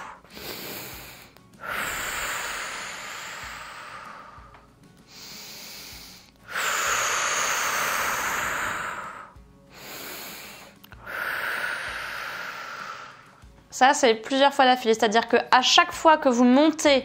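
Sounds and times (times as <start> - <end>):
woman breathing and exhaling: 0.0 - 13.6.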